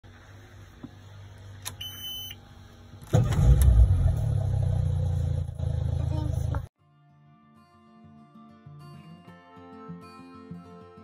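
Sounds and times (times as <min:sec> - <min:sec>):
outboard motor cranking and idling: 0:03.0 - 0:06.7.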